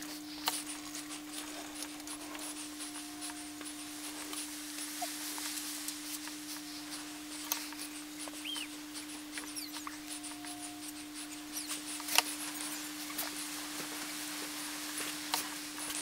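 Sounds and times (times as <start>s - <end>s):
steady electrical hum: 0.0s - 16.0s
wood-burning pen crackling: 0.0s - 16.0s
tiny clicks and squeaks: 7.4s - 13.4s.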